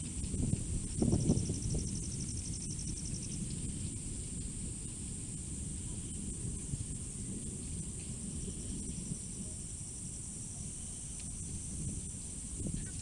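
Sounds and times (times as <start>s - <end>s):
insects droning: 0.0s - 13.0s
wind buffeting microphone: 0.0s - 13.0s.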